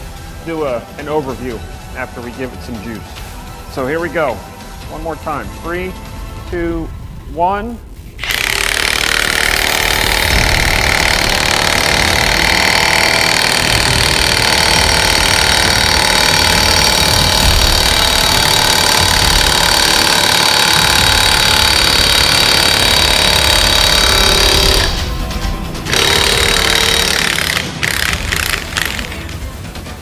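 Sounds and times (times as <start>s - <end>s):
impact wrench hammering: 8.2s - 29.4s.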